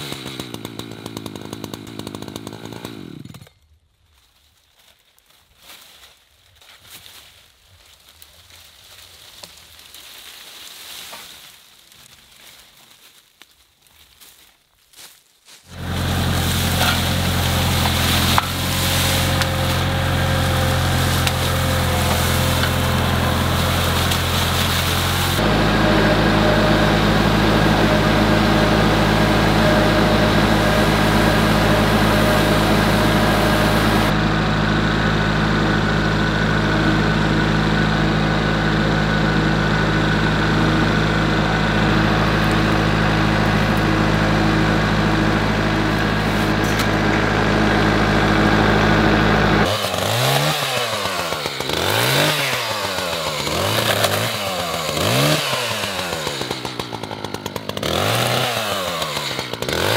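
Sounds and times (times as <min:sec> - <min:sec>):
chainsaw revving: 0:00.0 - 0:03.6, 0:15.7 - 0:59.9
tractor engine running: 0:15.7 - 0:59.9.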